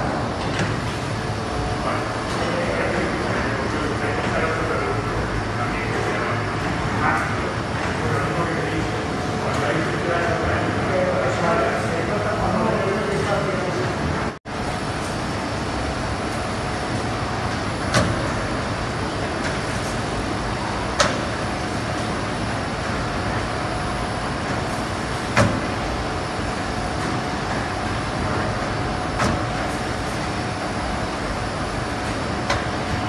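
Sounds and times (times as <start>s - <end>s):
machine clunk: 0.0s - 1.0s, 17.5s - 18.6s, 20.9s - 21.4s, 24.4s - 25.9s, 27.0s - 29.7s
machine running with hum: 0.0s - 33.0s.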